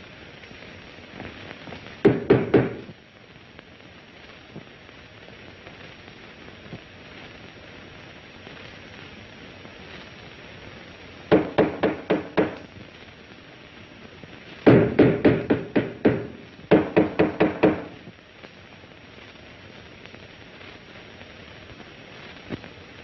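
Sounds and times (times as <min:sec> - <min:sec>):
rapid knocking on a wall: 0:02.0 - 0:02.9, 0:11.3 - 0:12.6, 0:14.7 - 0:17.9.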